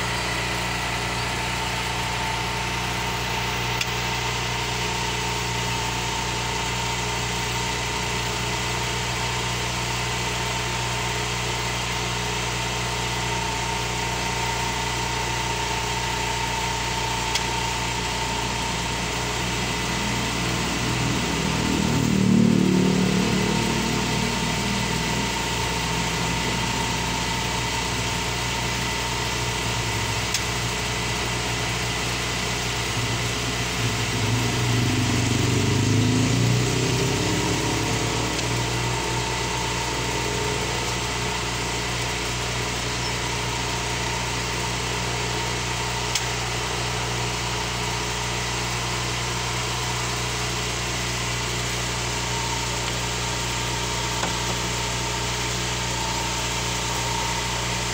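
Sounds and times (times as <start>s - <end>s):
traffic engine noise: 15.6s - 57.9s
vehicle passing: 33.9s - 40.2s.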